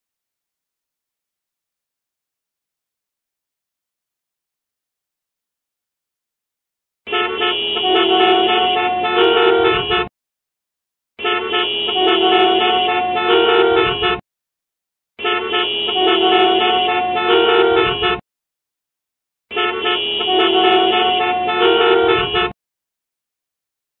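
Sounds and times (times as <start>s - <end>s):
car horns honking: 7.1s - 10.1s, 11.2s - 14.2s, 15.2s - 18.2s, 19.5s - 22.6s.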